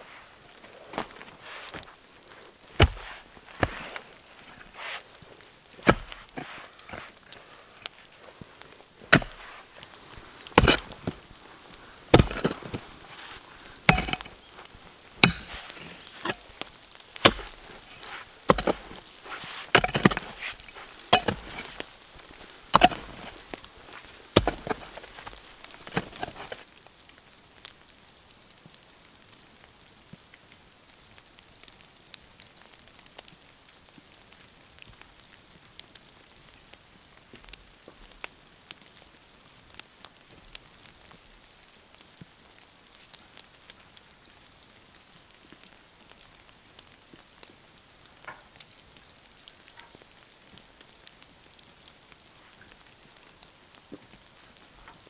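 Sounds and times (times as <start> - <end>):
pick striking stony soil: 0.9 - 2.0, 2.7 - 5.1, 5.8 - 8.0, 9.0 - 11.3, 12.0 - 26.6.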